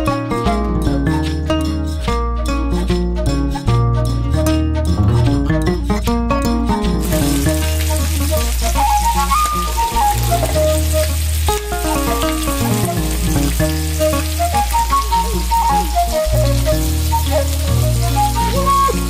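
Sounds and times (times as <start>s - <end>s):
background music: 0.0s - 19.0s
fish sizzling in oil: 7.0s - 19.0s.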